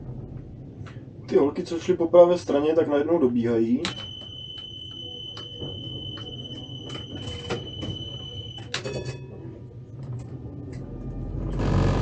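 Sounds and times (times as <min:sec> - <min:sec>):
low steady tram hum: 0:00.0 - 0:12.0
high door warning beep: 0:03.8 - 0:09.5.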